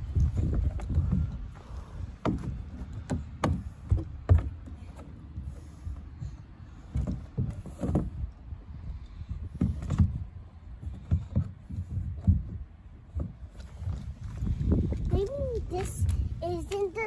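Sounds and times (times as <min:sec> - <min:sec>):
thumps on plastic climbing wall: 0:00.2 - 0:05.6, 0:06.8 - 0:08.3, 0:09.5 - 0:15.0.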